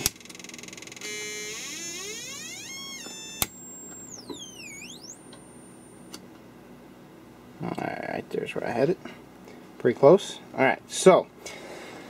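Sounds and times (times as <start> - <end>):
buzzy electronic tone: 1.0 - 6.2.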